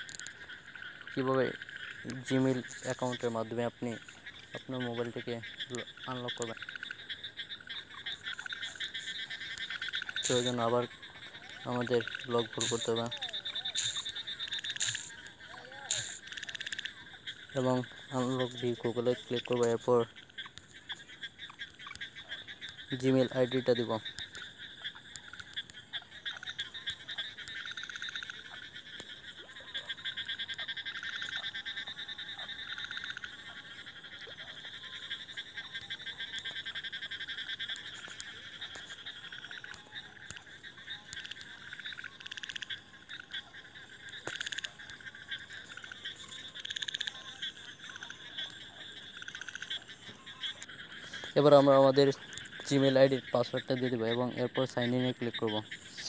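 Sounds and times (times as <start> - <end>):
faint clicks: 0.0 - 0.9, 11.4 - 16.9, 19.3 - 51.4, 52.2 - 53.2
frogs trilling: 0.0 - 56.0.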